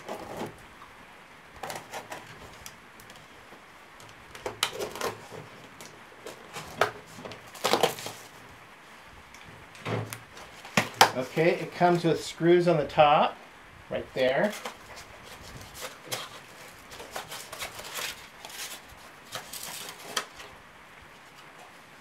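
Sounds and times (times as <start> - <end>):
cardboard flaps rustling: 1.6 - 8.5, 9.4 - 12.3, 14.2 - 21.8
knife slitting cardboard: 6.2 - 8.3, 14.4 - 20.5.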